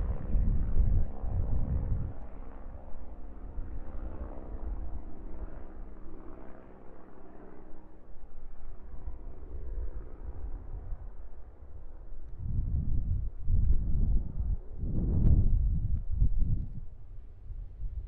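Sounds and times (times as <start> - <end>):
wind buffeting microphone: 0.0 - 5.6, 9.6 - 18.0.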